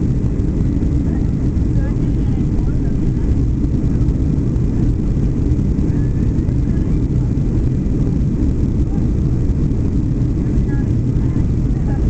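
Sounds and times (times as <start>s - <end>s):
aircraft cabin engine roar: 0.0s - 12.0s.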